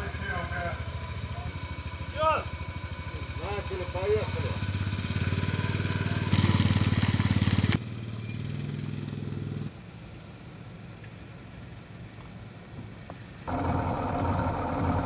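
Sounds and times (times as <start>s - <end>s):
quad bike engine revving: 0.8s - 9.7s, 13.5s - 15.0s
low steady engine rumble: 9.6s - 15.0s.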